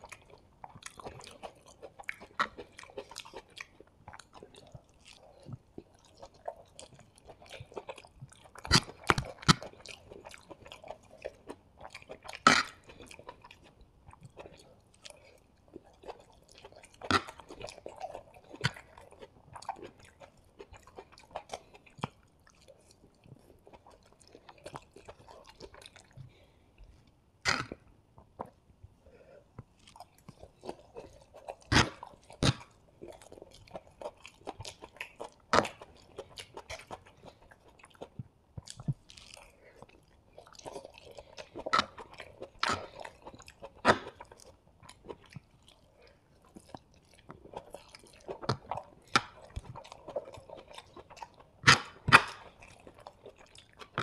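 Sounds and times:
person chewing food: 0:00.0 - 0:54.0
wet mouth clicks: 0:27.5 - 0:28.6, 0:29.6 - 0:32.7, 0:51.6 - 0:52.6.

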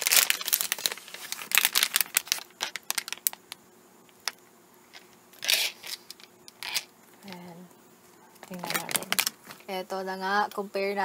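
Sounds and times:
plastic bag crinkling: 0:00.0 - 0:03.6, 0:08.4 - 0:09.7.

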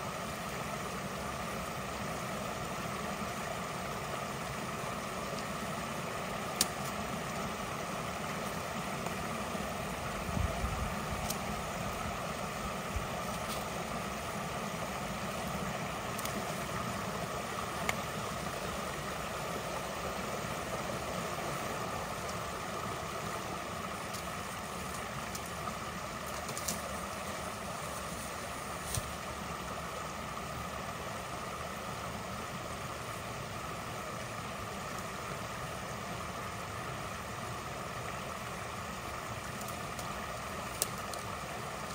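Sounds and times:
water rushing: 0:00.0 - 0:41.9.

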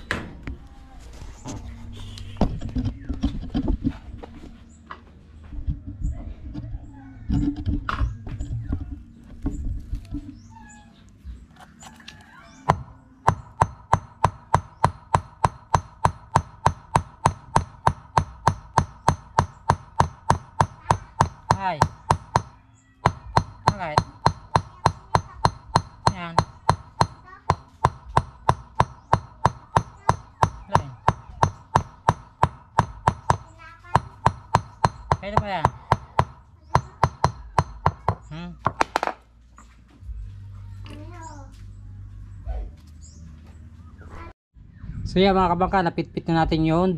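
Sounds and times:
hammer striking metal rod: 0:12.7 - 0:39.2.

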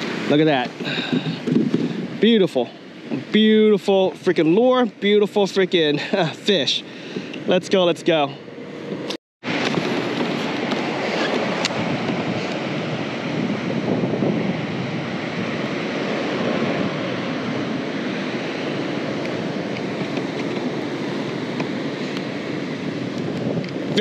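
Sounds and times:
wind buffeting microphone: 0:00.0 - 0:04.2, 0:08.6 - 0:24.0
choppy water: 0:09.4 - 0:24.0.

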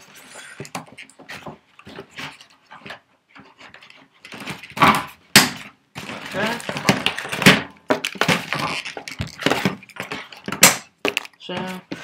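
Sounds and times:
cardboard crinkling and scraping: 0:00.0 - 0:12.0
cardboard tearing: 0:06.0 - 0:10.3.

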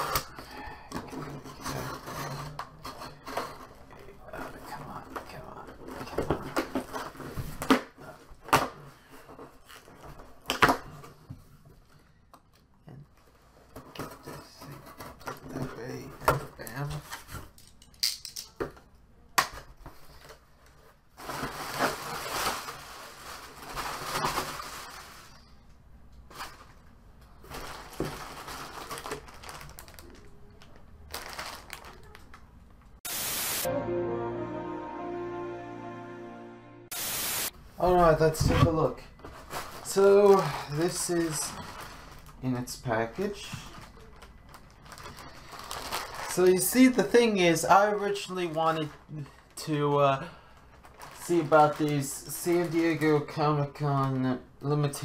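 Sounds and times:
package rustling and tearing: 0:27.4 - 0:32.4, 0:43.4 - 0:47.1, 0:50.7 - 0:53.0.

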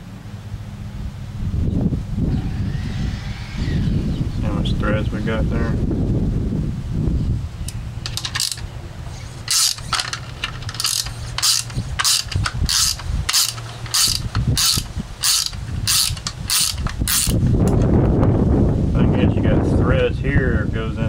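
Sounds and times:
socket ratchet clicking: 0:08.0 - 0:08.7, 0:09.4 - 0:17.4.

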